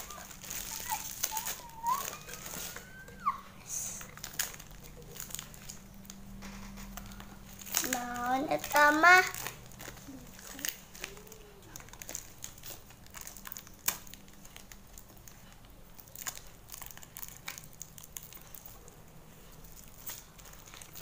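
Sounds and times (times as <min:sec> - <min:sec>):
plastic wrapping crinkling: 0:00.0 - 0:21.0
plastic wrapping snap: 0:04.0 - 0:15.3.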